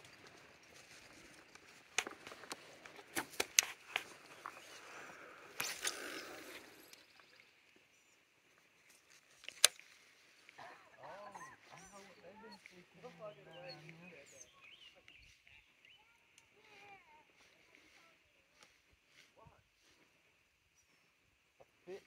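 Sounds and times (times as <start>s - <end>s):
twigs snapping: 1.5s - 4.5s, 9.3s - 10.0s
brush rustling: 8.6s - 20.3s.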